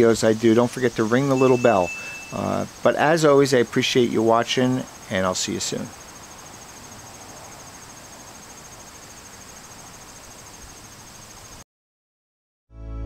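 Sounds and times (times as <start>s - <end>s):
crickets chirping: 0.0s - 11.6s
faint background hiss: 0.0s - 11.6s.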